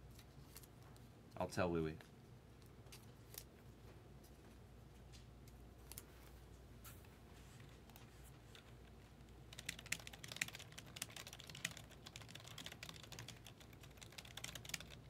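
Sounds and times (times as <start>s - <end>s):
fast typing on keyboard: 9.4s - 15.0s.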